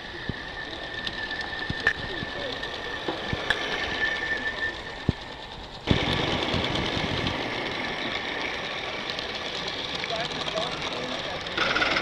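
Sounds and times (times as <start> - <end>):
locomotive wheels running on track: 0.0 - 12.0
steam exhaust hissing: 3.2 - 12.0.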